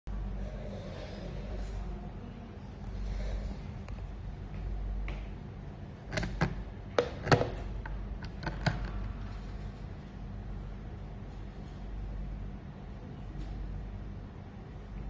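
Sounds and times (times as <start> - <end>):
steady low hum: 0.1 - 15.0
plastic plug clicks and knocks: 6.1 - 7.6.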